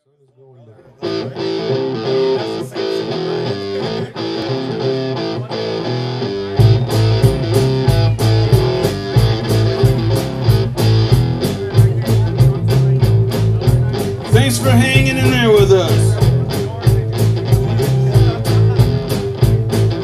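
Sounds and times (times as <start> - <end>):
electric guitar and bass riff: 1.0 - 20.0
drum kit steady beat: 6.6 - 20.0.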